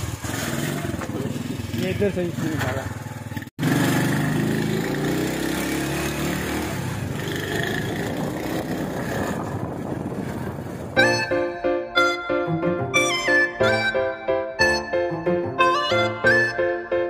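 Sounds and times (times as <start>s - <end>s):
small motorcycle engine running: 0.0s - 11.0s.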